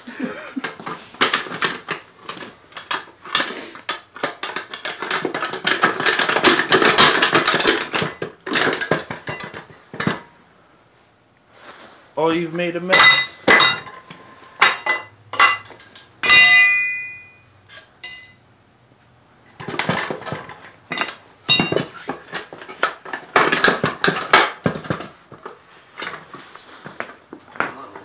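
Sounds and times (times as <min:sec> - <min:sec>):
pry bars rattling and scraping: 0:00.7 - 0:10.2, 0:12.9 - 0:18.4
metal clanks and clinks: 0:04.2 - 0:10.2, 0:12.9 - 0:18.4, 0:19.6 - 0:24.3.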